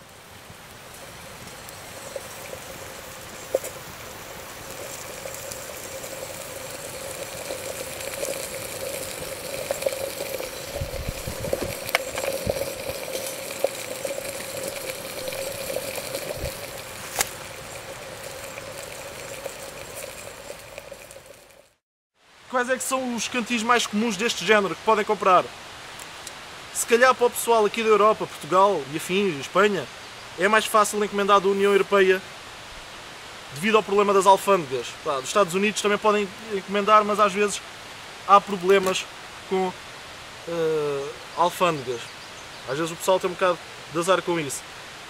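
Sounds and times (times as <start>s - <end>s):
water bubbling hiss: 0.1s - 21.8s
burning twigs snapping: 0.9s - 21.6s.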